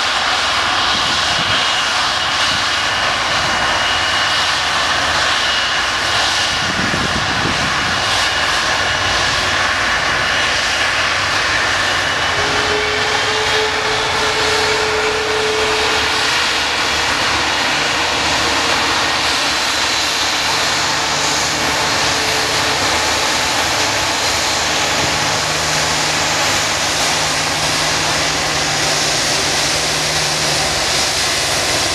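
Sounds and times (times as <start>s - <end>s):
jet engines running: 0.0s - 31.9s
lower hum: 12.1s - 31.9s.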